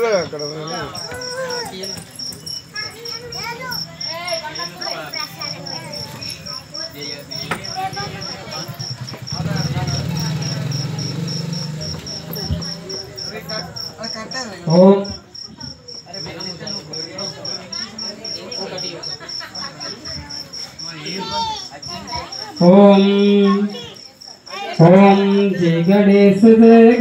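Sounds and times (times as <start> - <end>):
cricket chirping: 0.0 - 27.0.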